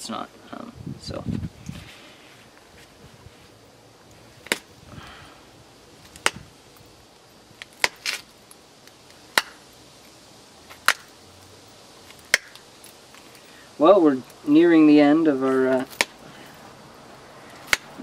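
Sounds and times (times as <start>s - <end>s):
stone flakes snapping clicks: 7.6s - 9.6s, 10.8s - 11.1s, 12.1s - 13.3s, 17.6s - 18.0s.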